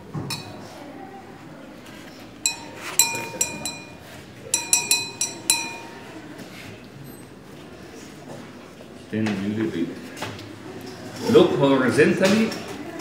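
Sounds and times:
pipette clinking against glass beaker: 0:02.4 - 0:06.2.

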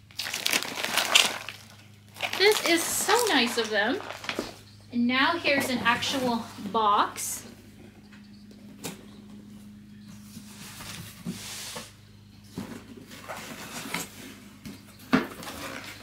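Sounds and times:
faint low hum: 0:00.0 - 0:16.0
cardboard rustling: 0:00.3 - 0:04.6, 0:12.6 - 0:14.5.

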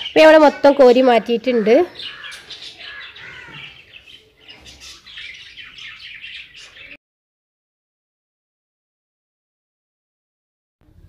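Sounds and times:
birds chirping: 0:00.0 - 0:07.0.

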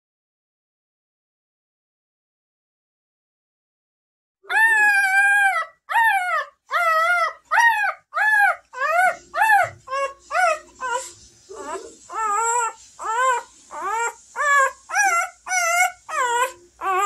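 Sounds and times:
puppy crying: 0:04.5 - 0:17.0.

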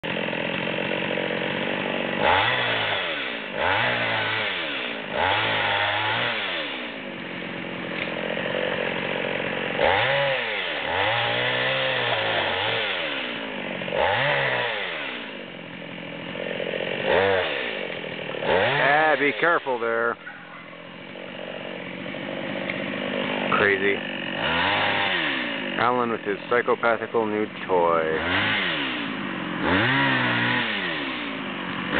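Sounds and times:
chainsaw revving and idling: 0:00.0 - 0:31.9.

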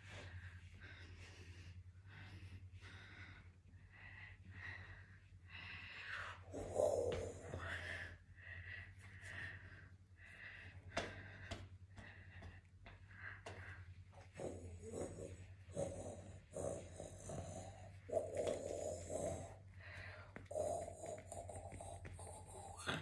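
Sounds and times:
steady low hum: 0:00.0 - 0:23.0
person gasping and snorting: 0:13.4 - 0:23.0.

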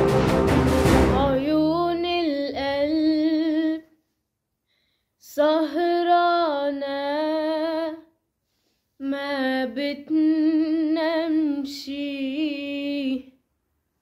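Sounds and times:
woman singing unaccompanied: 0:01.1 - 0:04.0, 0:05.2 - 0:08.1, 0:09.0 - 0:13.3.

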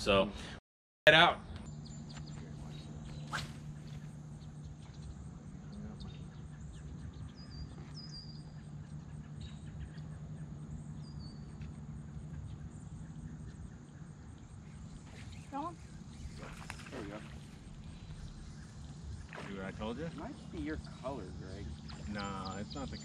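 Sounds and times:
steady low hum: 0:00.0 - 0:23.0
faint bird chirps: 0:01.6 - 0:23.0.

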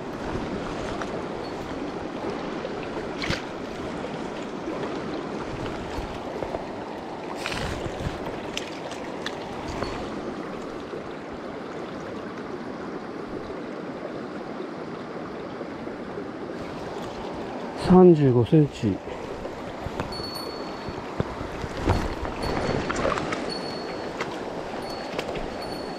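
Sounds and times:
knocks and splashes in water: 0:00.0 - 0:12.2, 0:19.2 - 0:25.8
stream water rushing over rocks: 0:00.0 - 0:25.9.

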